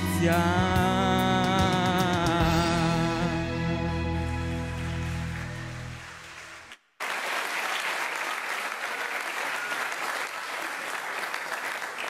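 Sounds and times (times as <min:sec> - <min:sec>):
audience applause: 0:04.7 - 0:12.0.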